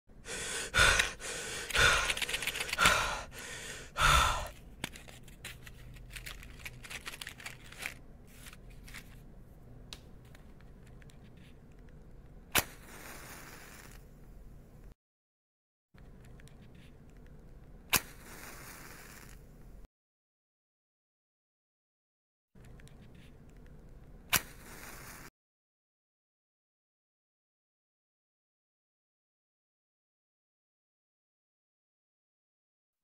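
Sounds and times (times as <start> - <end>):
match striking and fizzing: 12.5 - 14.0, 17.9 - 19.4, 24.3 - 25.3.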